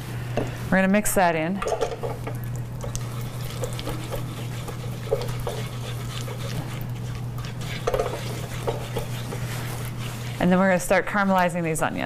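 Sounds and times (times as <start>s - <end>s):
steady low hum: 0.0s - 12.0s
spatula scraping frying pan: 2.9s - 11.6s.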